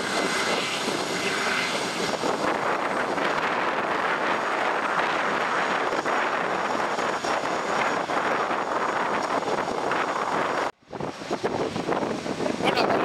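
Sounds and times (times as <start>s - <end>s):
jet engines running: 0.0s - 13.0s.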